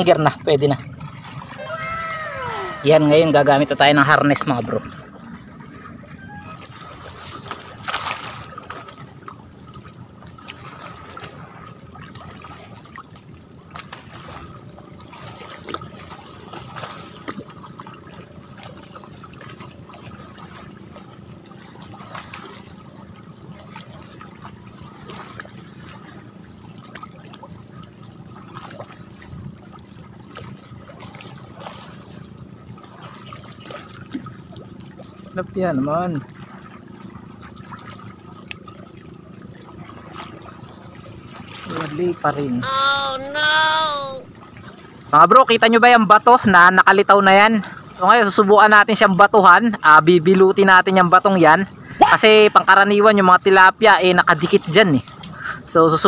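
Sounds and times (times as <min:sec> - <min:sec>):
water trickling and sloshing: 0:00.0 - 0:42.6, 0:44.2 - 0:56.0
small splashes: 0:04.8 - 0:35.4, 0:36.2 - 0:45.1.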